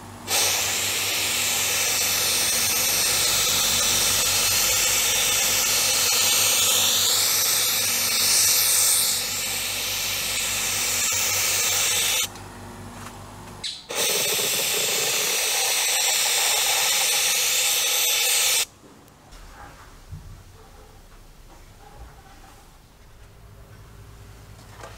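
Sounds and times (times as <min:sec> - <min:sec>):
heat gun blowing air: 0:00.3 - 0:12.3, 0:13.9 - 0:18.7.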